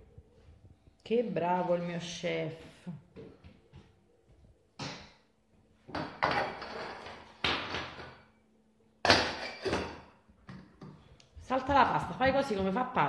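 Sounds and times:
metal saucepans clanking: 9.0 - 10.2.

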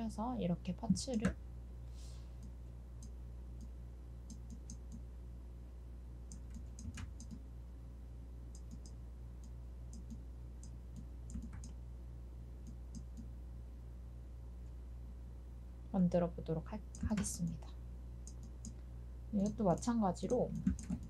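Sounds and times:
low electrical hum: 0.0 - 21.0
mouse and keyboard clicks: 6.3 - 7.4.

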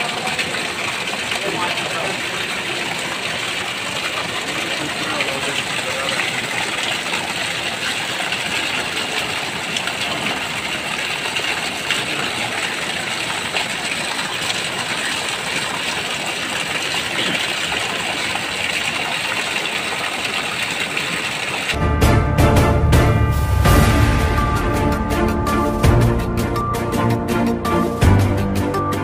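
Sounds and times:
flooded river rushing: 0.0 - 21.8
rain falling: 0.0 - 21.8.

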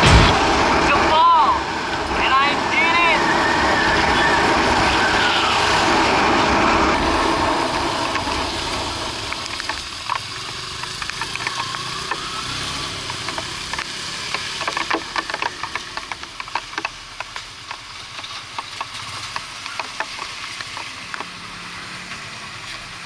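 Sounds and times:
wind rush: 0.0 - 10.2
motorcycle engine running: 4.5 - 16.8
scattered ticks: 8.0 - 21.4.

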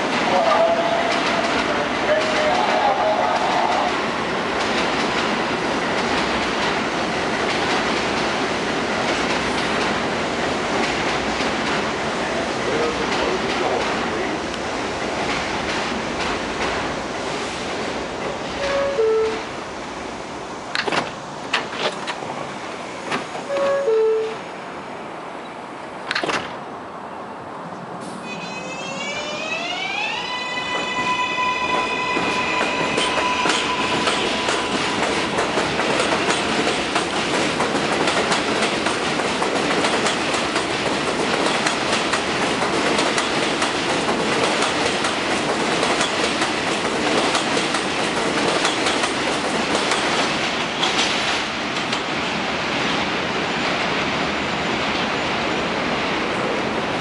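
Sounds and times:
wheels clicking over rail joints: 33.1 - 52.1.

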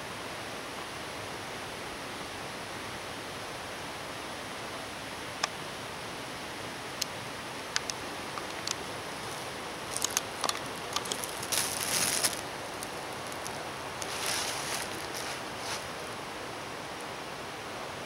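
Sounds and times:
steady hiss: 0.0 - 18.0
footsteps on dry leaves: 8.5 - 16.2.

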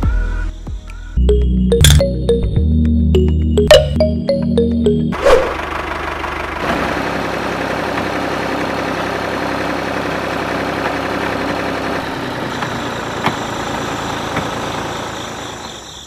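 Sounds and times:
tractor engine idling: 3.8 - 16.0.

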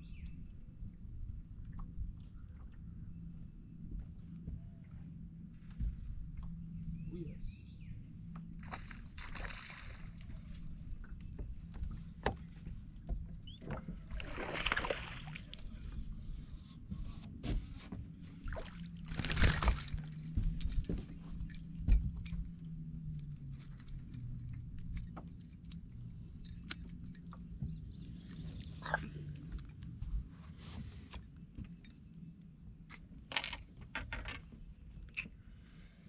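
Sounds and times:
steady low hum: 0.0 - 36.0
fish splashing at surface: 14.2 - 15.6
tackle clicks and rattles: 19.0 - 22.4.

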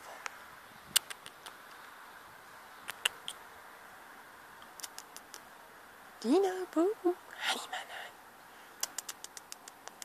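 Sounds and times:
faint steady hiss: 0.0 - 10.0
sharp clicks: 2.9 - 3.4, 4.6 - 5.5, 8.8 - 10.0.

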